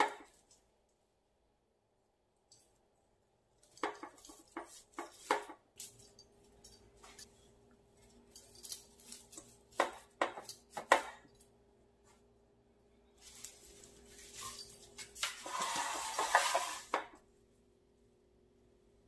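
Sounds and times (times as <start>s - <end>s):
leaves rustling: 13.2s - 16.9s.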